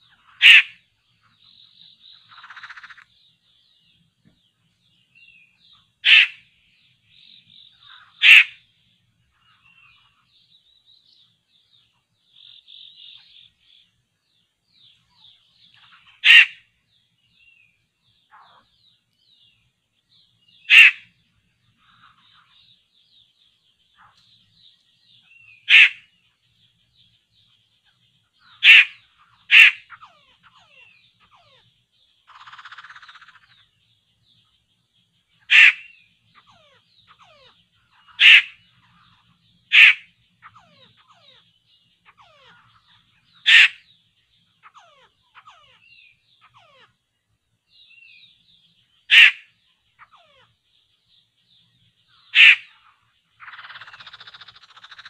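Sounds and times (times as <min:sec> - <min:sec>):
harsh bird-like calls: 0:00.0 - 0:03.2, 0:05.5 - 0:11.3, 0:14.8 - 0:16.8, 0:20.2 - 0:22.9, 0:23.9 - 0:26.8, 0:27.8 - 0:33.8, 0:35.3 - 0:47.1, 0:47.7 - 0:55.0.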